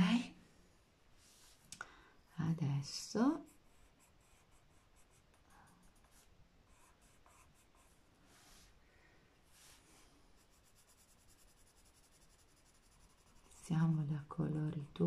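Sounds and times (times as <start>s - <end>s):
pencil scratching on paper: 3.4s - 8.7s, 10.4s - 15.0s.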